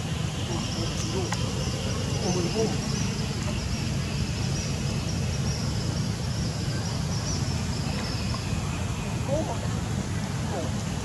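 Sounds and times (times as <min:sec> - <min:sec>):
insects chirring: 0:00.0 - 0:09.6.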